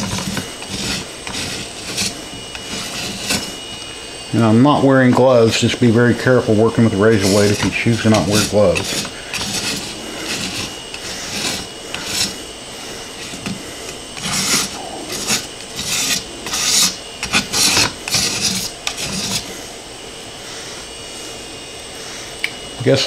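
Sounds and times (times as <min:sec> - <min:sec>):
razor blade scraping metal plate: 0:00.0 - 0:04.0, 0:06.9 - 0:19.6.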